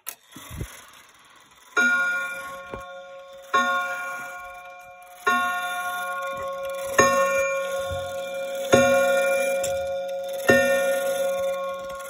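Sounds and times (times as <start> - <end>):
wall clock striking: 1.7 - 12.0.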